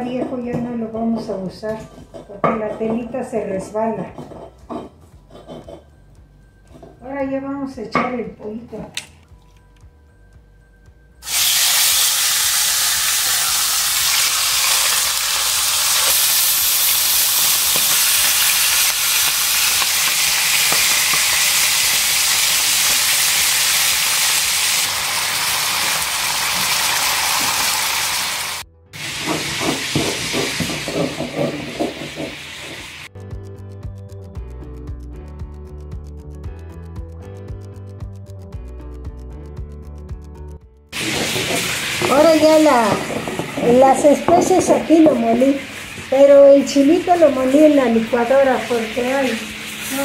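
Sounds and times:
chicken frying in hot oil: 11.2 - 31.5, 41.0 - 50.0.

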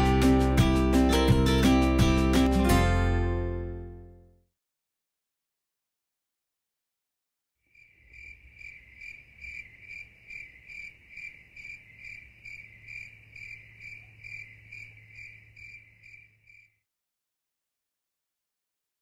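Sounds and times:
cricket chirping: 7.7 - 16.8.

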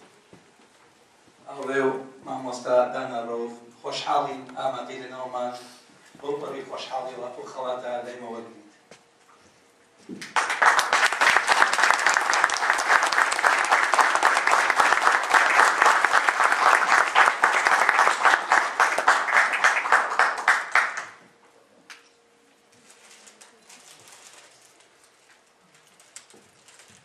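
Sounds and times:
audience applauding: 10.2 - 21.2.

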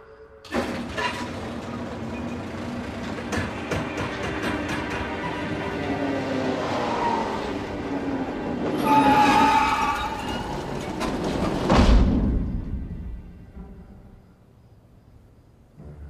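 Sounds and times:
loud squeal: 8.6 - 11.5.

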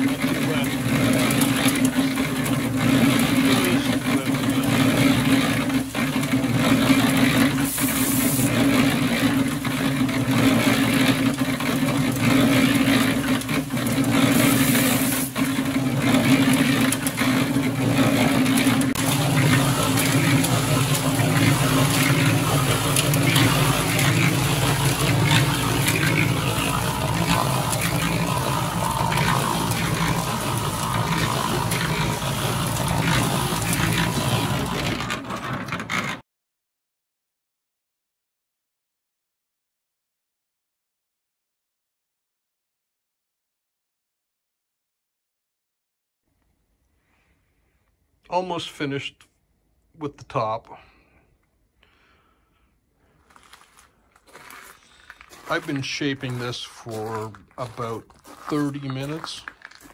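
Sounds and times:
cement mixer motor humming: 0.0 - 36.2, 53.0 - 59.9
drum tumbling wet concrete: 0.0 - 36.2, 53.0 - 59.9.

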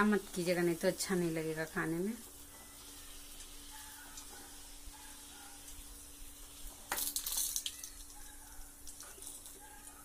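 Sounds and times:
oil sizzling: 0.0 - 9.6
oil crackling burst: 6.0 - 8.2.

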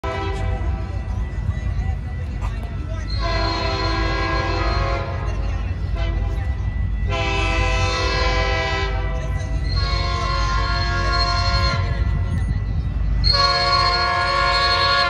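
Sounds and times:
locomotive air horn blasts: 0.0 - 0.8, 3.2 - 5.3, 5.9 - 6.4, 7.1 - 9.2, 9.8 - 12.1, 13.2 - 15.0
train low rumble: 0.0 - 15.0.

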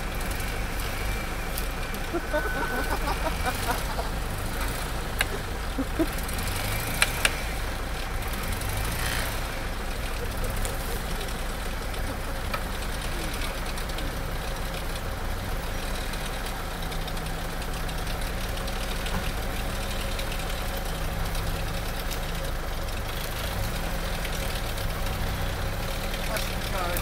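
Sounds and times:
diesel engine clatter at low revs: 0.0 - 27.0.

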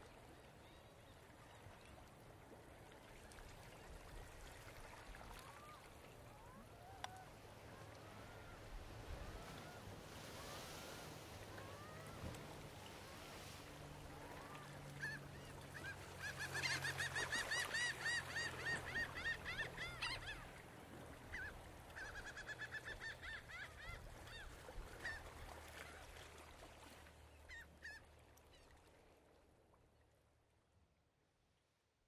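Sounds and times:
flock of birds calling: 14.2 - 20.5.

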